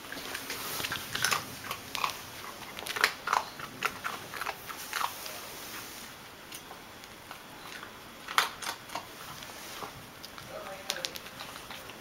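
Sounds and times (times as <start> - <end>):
dog snapping and play-biting: 0.1 - 5.1, 7.8 - 9.1.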